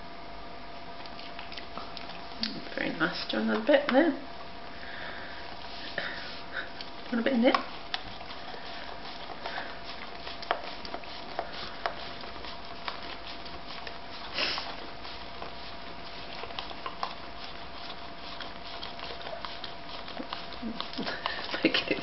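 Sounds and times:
dog licking plastic pot: 0:01.0 - 0:04.0, 0:05.6 - 0:22.0
dog breathy noise: 0:14.1 - 0:15.7.

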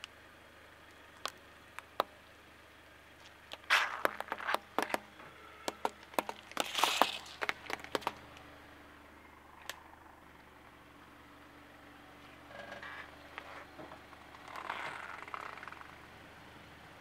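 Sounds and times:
gourd cracking and crunching: 0:03.2 - 0:05.0, 0:06.0 - 0:08.2.

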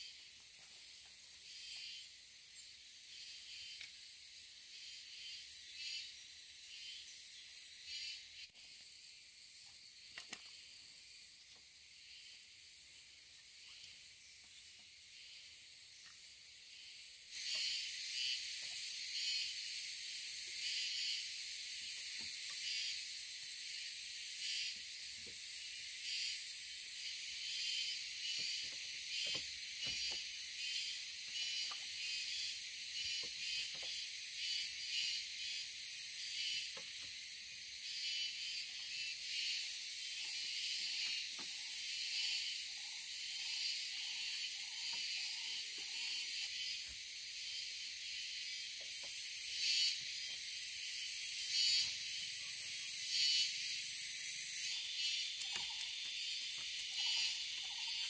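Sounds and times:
forest insects chorus: 0:00.0 - 0:58.0
knocks of bamboo being handled: 0:28.3 - 0:30.3.

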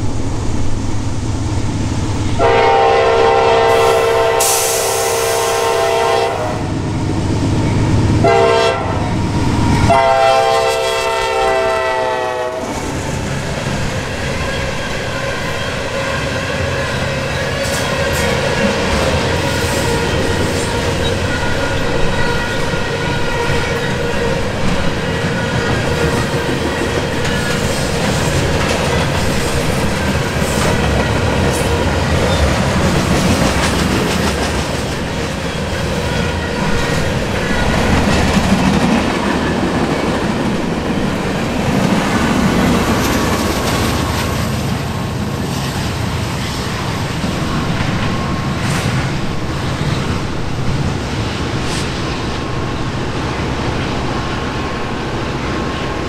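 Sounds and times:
freight train rumble: 0:00.0 - 0:56.0
train wheels clacking: 0:12.7 - 0:44.8, 0:45.4 - 0:50.3.

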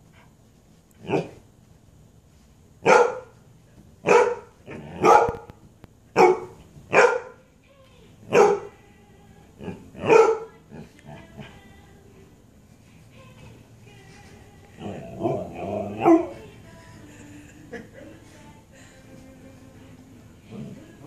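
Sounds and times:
dog barking in play: 0:02.8 - 0:03.4, 0:04.0 - 0:07.4, 0:08.2 - 0:08.8, 0:09.6 - 0:11.5, 0:14.8 - 0:16.5.

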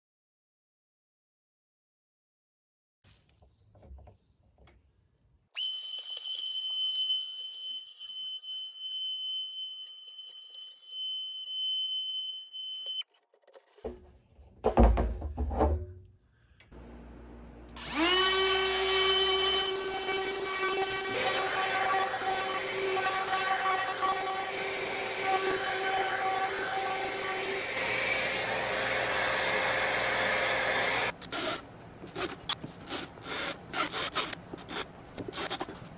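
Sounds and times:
router motor whining: 0:17.8 - 0:31.6.

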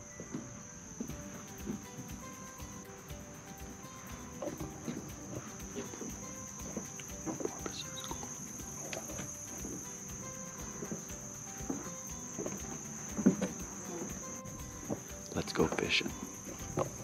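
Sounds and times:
insects chorus: 0:00.0 - 0:17.0
footsteps on wooden boards: 0:10.6 - 0:17.0.

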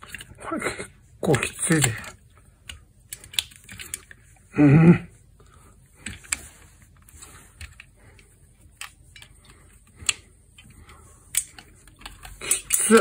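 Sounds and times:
small clicks and metal taps: 0:01.5 - 0:04.2, 0:07.6 - 0:13.0.

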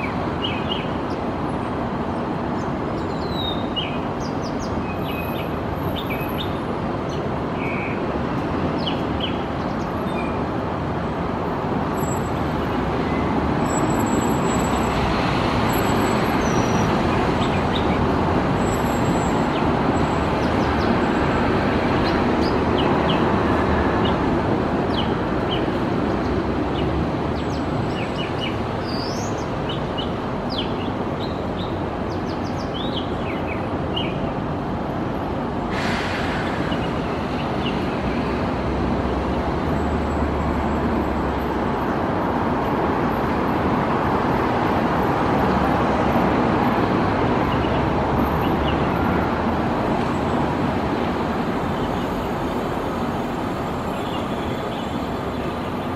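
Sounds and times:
road traffic rumble: 0:00.0 - 0:55.9.

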